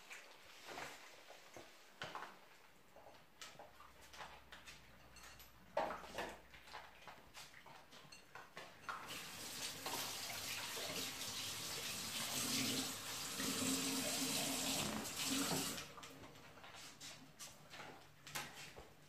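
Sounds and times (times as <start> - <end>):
water running: 8.9 - 16.3.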